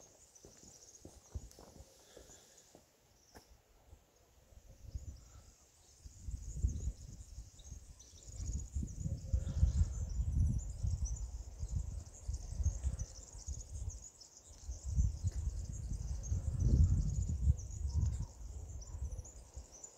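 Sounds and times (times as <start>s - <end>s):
insects and birds chirping: 0.0s - 19.9s
wind buffeting microphone: 6.0s - 19.5s.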